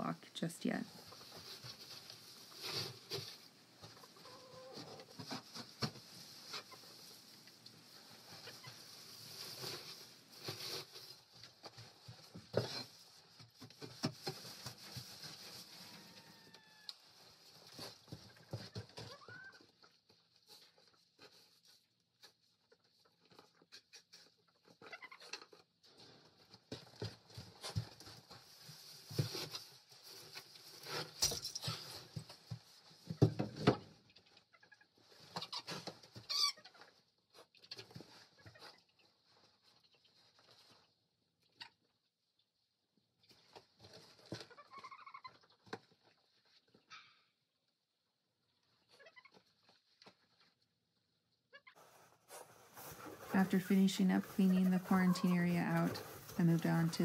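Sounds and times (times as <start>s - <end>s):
tool scraping straw bedding: 51.8s - 57.0s.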